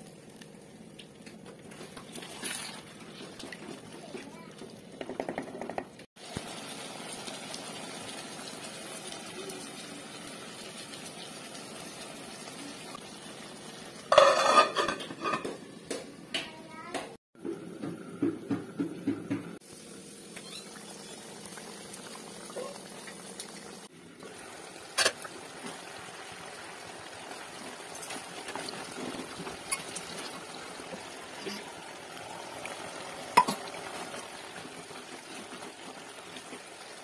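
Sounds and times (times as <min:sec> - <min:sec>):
curry bubbling in a clay pot: 0:19.6 - 0:37.0.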